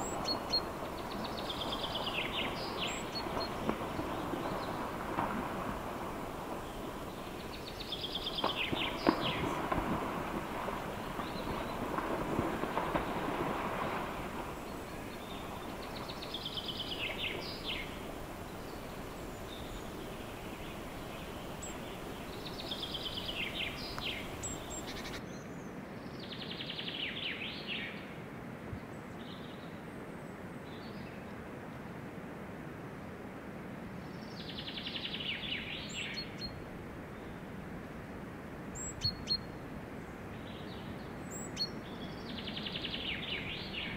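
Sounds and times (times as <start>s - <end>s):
songbird trilled song: 0.0s - 3.7s, 14.8s - 25.5s
moose splashing through water: 0.0s - 25.2s
outdoor hiss: 0.0s - 25.7s.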